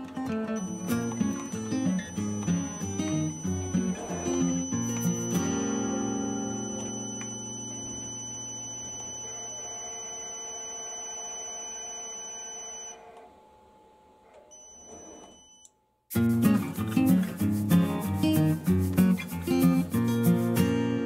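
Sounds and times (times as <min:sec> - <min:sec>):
guitar music: 0:00.0 - 0:09.6, 0:16.1 - 0:21.0
high-pitched electronic buzzer tone: 0:00.6 - 0:13.0.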